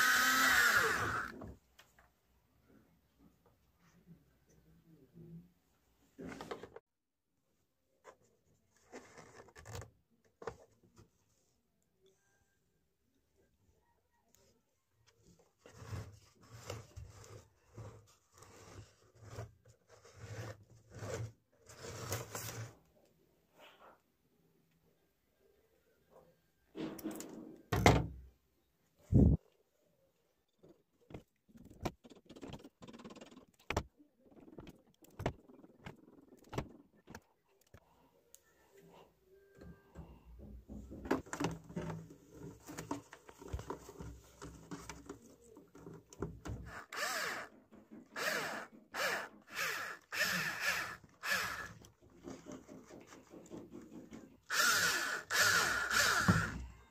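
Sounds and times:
rustling and knocking: 30.5s - 37.4s, 40.0s - 46.6s, 52.0s - 54.4s.

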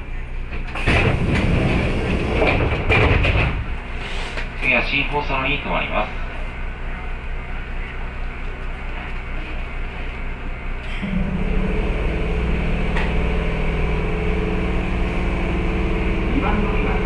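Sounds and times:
electric train hum: 0.0s - 17.0s
low drone: 5.3s - 17.0s.

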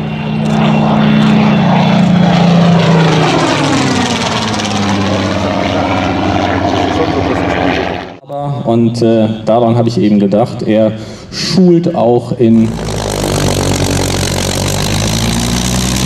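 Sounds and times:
propeller plane engine flying past: 0.0s - 8.2s, 12.4s - 16.0s.

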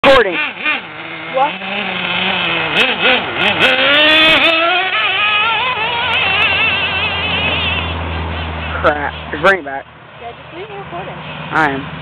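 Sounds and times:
small engine revving high buzz: 0.0s - 8.7s.

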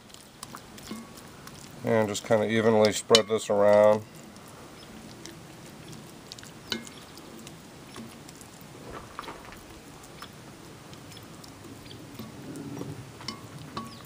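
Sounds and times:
soft patting and squishing: 0.0s - 13.9s
spoon clicking on cast iron: 6.7s - 7.0s, 13.2s - 14.0s.

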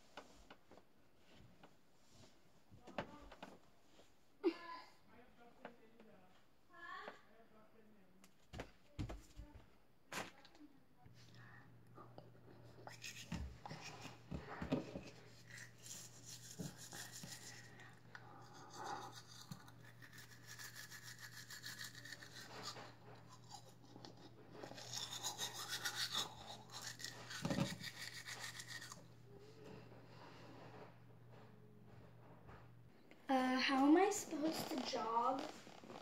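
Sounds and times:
toothbrush scrubbing teeth: 12.7s - 14.3s, 15.0s - 29.2s.

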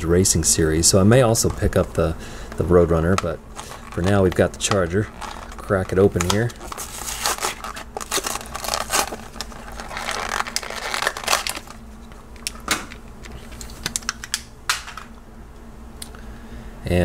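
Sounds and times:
plastic crinkling: 3.0s - 13.0s
cardboard tearing: 3.6s - 11.8s.

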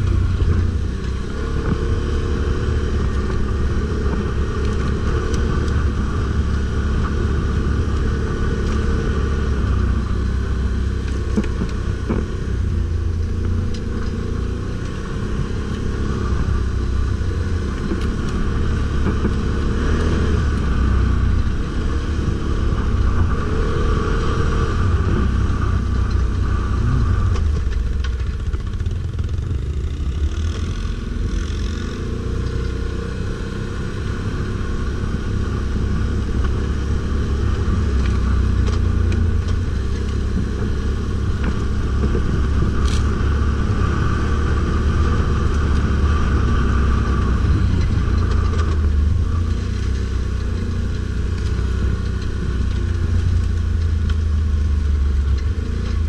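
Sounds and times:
atv engine running loudly: 0.0s - 56.0s.

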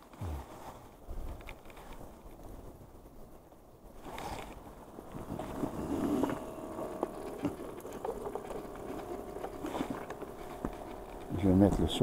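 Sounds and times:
aerator pump humming: 4.0s - 12.0s.

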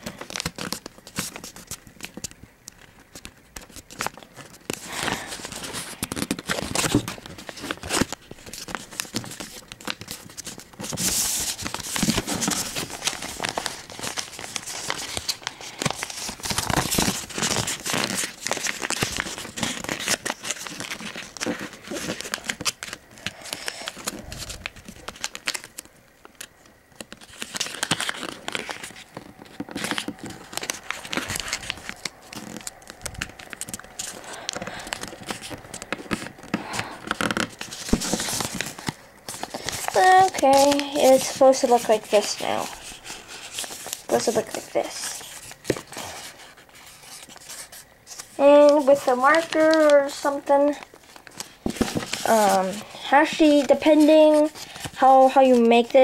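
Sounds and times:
paper folding and rustling: 0.0s - 56.0s.

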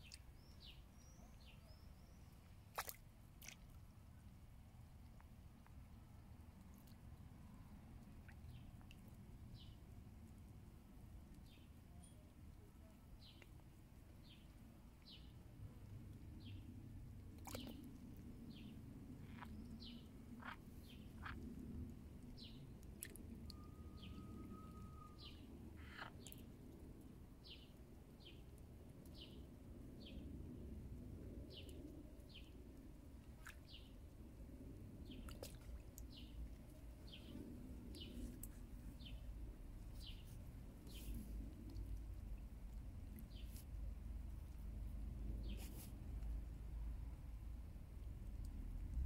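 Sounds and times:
low background rumble: 0.0s - 49.0s
brief steady whistle: 23.5s - 25.2s
small bird chirps: 23.5s - 26.4s.

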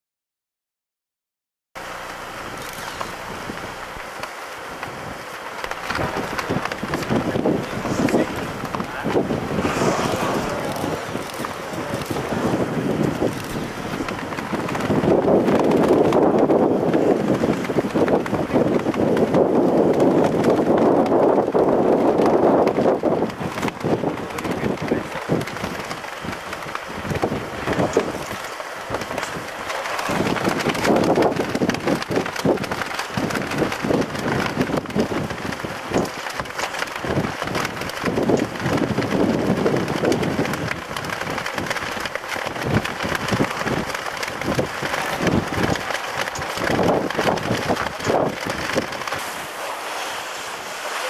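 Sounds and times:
gusty wind buffeting microphone: 1.8s - 51.0s.

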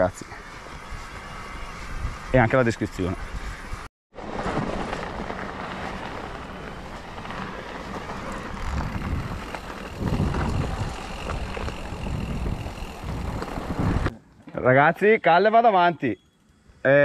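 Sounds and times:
wind rushing on microphone: 8.5s - 14.1s.

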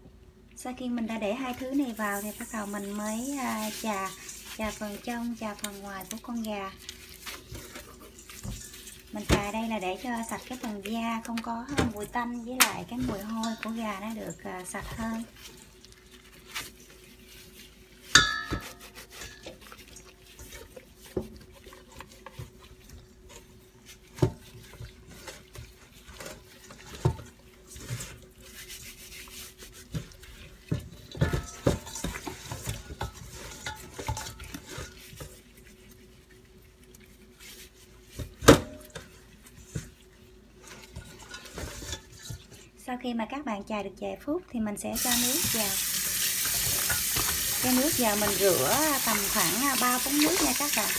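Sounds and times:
hands scrubbing chicken: 1.0s - 42.6s, 45.0s - 50.9s
metal bowl ringing: 18.1s - 19.4s
knocks against metal bowl: 18.2s - 18.8s.

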